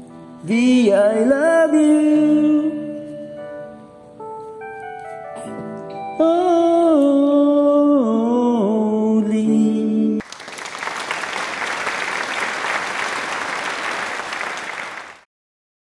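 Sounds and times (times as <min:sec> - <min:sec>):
man singing into microphone: 0:00.4 - 0:03.4, 0:06.2 - 0:10.2
applause: 0:10.2 - 0:15.3.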